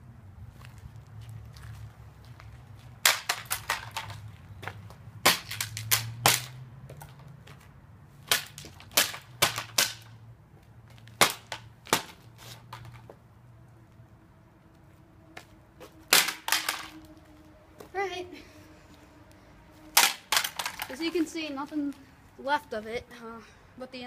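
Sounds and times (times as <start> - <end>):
plastic toy gun breaking on asphalt: 3.0 - 4.2, 5.2 - 7.2, 8.2 - 10.2, 11.0 - 13.0, 16.1 - 17.2, 19.9 - 21.0.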